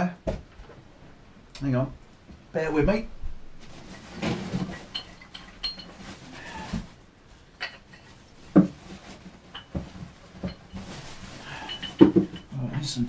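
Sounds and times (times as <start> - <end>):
metal tools clinking: 4.5 - 6.3, 7.6 - 8.2, 9.5 - 9.8, 10.4 - 13.0.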